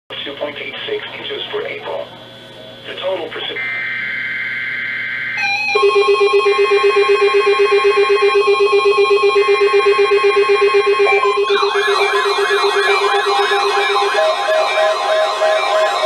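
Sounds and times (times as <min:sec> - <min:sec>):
buzzing digital header tones: 0:02.9 - 0:16.0
siren-like warble: 0:03.6 - 0:16.0
radio alert beeps: 0:11.0 - 0:16.0.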